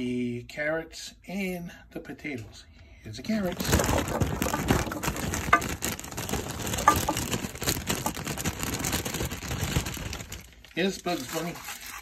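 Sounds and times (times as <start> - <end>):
plastic bag rustling: 3.3 - 12.0
carrots clattering into a pot: 3.4 - 12.0.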